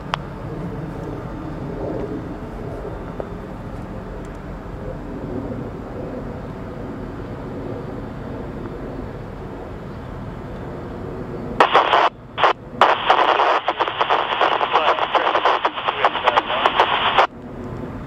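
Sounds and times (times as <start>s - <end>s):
diesel locomotive rumble: 0.0s - 12.9s
scanner radio transmission: 11.6s - 17.3s.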